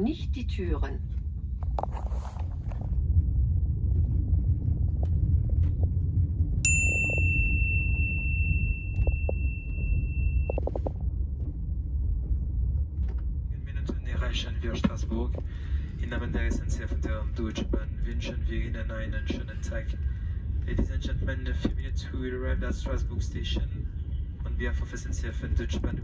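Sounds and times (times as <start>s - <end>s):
train rumble from inside car: 0.0s - 26.0s
high steady tone: 6.6s - 11.0s.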